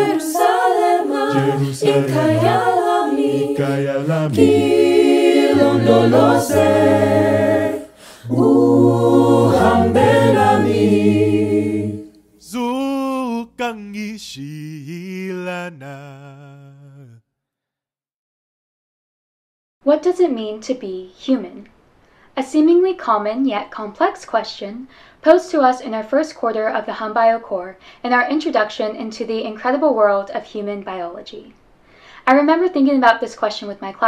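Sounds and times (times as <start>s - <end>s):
solo voice singing with vibrato: 0.0s - 6.8s, 7.7s - 17.2s
choir singing in harmony: 0.0s - 12.2s.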